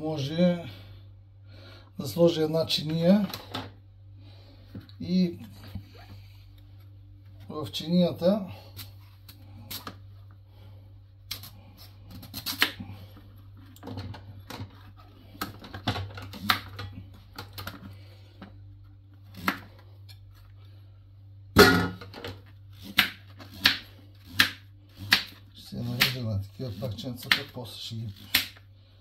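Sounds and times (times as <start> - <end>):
low steady hum: 0.0 - 29.0
knife chopping on plastic board: 22.9 - 25.4, 26.0 - 26.2.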